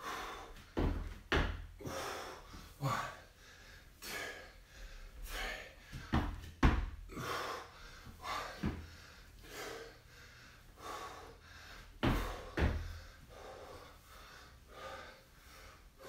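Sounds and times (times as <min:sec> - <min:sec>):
man breathing hard: 0:00.0 - 0:16.0
dull thumps: 0:06.0 - 0:07.0, 0:12.0 - 0:13.0.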